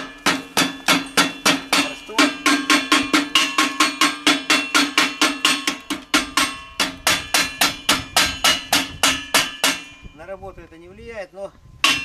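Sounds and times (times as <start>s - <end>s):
hammer striking steel frame: 0.0s - 10.2s.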